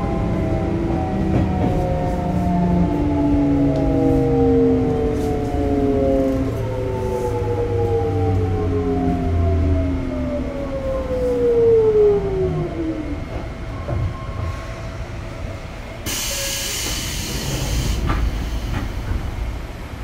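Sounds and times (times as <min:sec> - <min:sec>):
compressed air hiss: 0:16.1 - 0:19.0.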